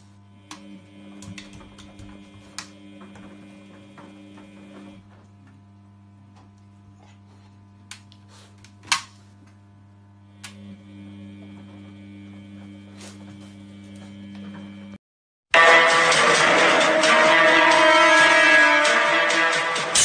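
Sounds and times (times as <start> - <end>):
washing machine humming: 0.0 - 15.0.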